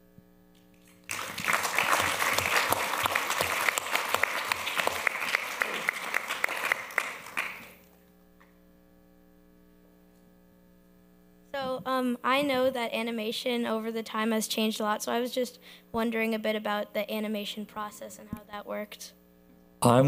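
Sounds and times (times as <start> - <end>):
audience applauding: 0.7 - 7.8.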